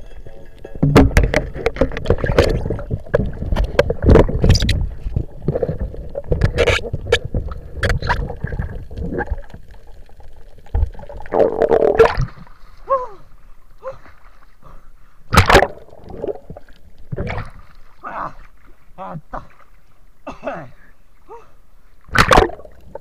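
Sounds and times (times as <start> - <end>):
water rushing underwater: 0.0 - 13.7, 15.3 - 18.8, 22.0 - 23.0
sharp clicks and knocks: 0.5 - 5.6.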